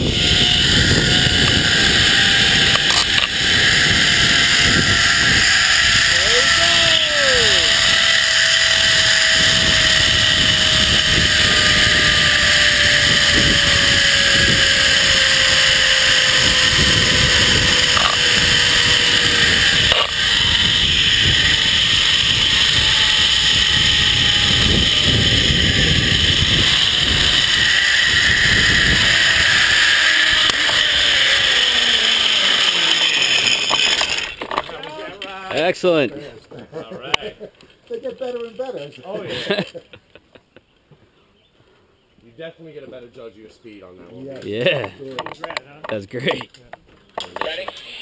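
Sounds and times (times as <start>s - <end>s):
wind buffeting microphone: 0.0s - 31.5s
zipline pulleys whining on cable: 0.0s - 40.0s, 47.1s - 48.0s.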